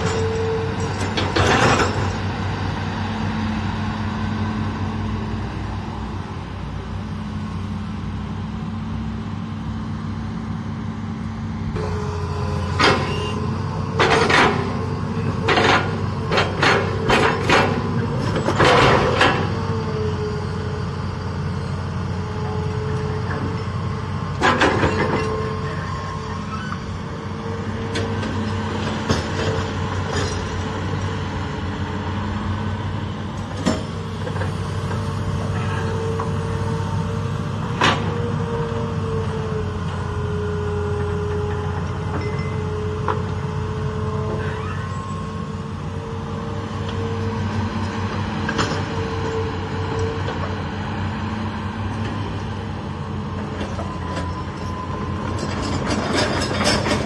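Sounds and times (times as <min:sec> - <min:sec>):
diesel engine running: 0:00.0 - 0:57.0
hydraulic pump whine: 0:11.6 - 0:57.0.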